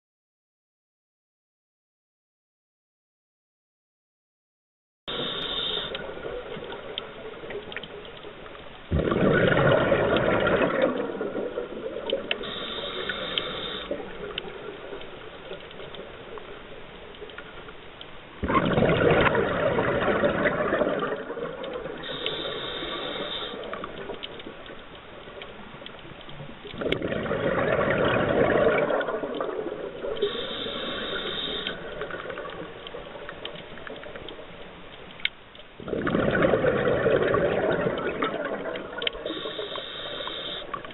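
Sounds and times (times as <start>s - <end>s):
demand valve hiss: 5.1s - 6.1s, 12.4s - 14.0s, 22.0s - 23.7s, 30.2s - 31.9s, 39.2s - 40.8s
bubbling regulator exhaust: 8.9s - 14.1s, 18.4s - 21.4s, 26.8s - 29.6s, 35.8s - 40.6s.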